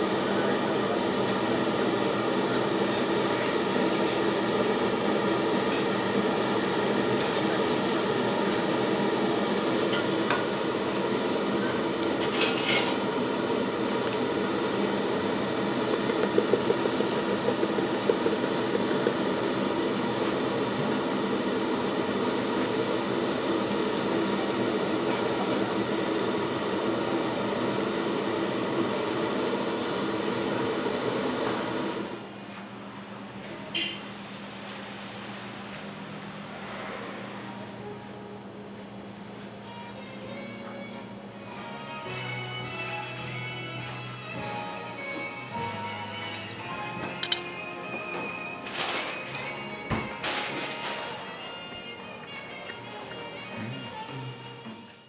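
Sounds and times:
kitchen ventilation hum: 0.0 - 55.0
steak sizzling on griddle: 0.2 - 32.1
metal utensils clinking: 12.2 - 13.0.

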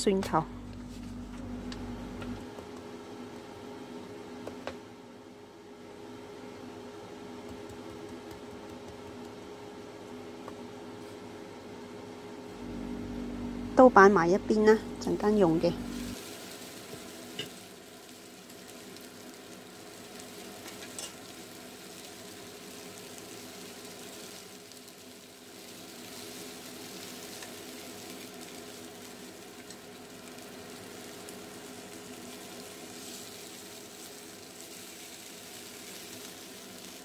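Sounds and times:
low hum: 0.0 - 3.3, 12.5 - 16.2
chicken sizzling in hot oil: 15.2 - 37.0.

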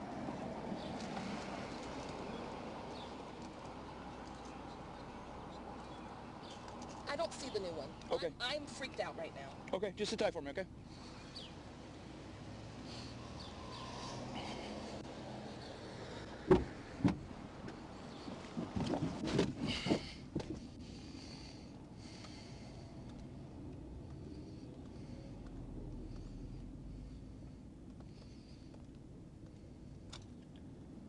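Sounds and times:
low hum of street traffic: 0.0 - 31.0
clunks and rustles: 16.4 - 20.8
sharp knocks on car door: 16.5 - 17.2.

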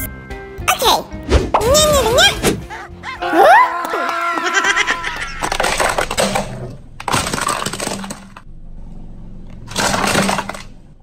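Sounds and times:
plastic toy cracking under tyre: 5.4 - 8.4.

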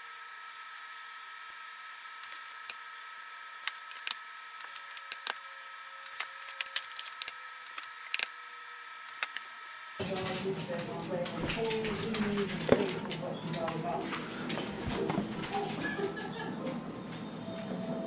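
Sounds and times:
electrical hum: 0.0 - 18.0
small crackles and clicks: 3.6 - 8.4, 9.0 - 9.5.

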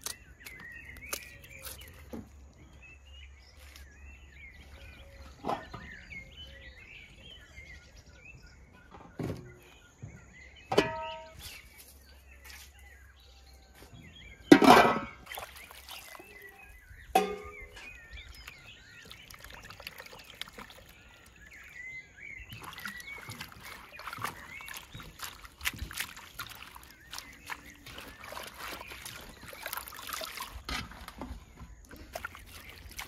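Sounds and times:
small birds chirping: 0.0 - 33.0
metal bowls and utensils clinking: 10.7 - 11.6, 14.5 - 18.0.

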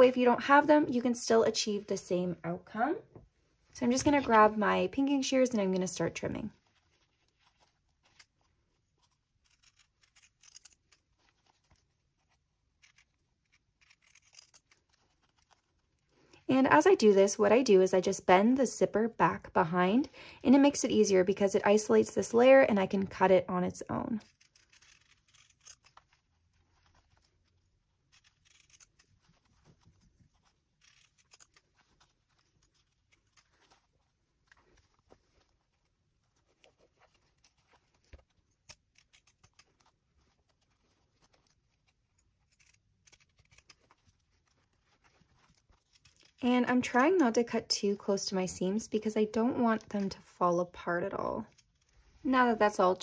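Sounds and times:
shears snipping fabric: 5.2 - 16.0, 24.0 - 47.6.

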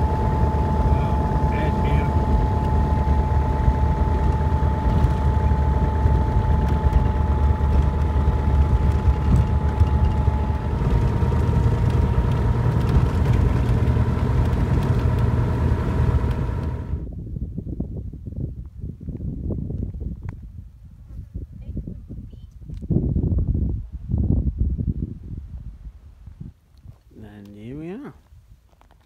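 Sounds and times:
aircraft engine and propeller drone: 0.0 - 17.1.

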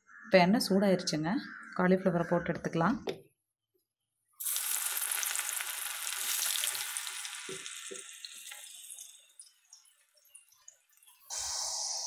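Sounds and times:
food deep-frying in oil: 4.4 - 11.3.

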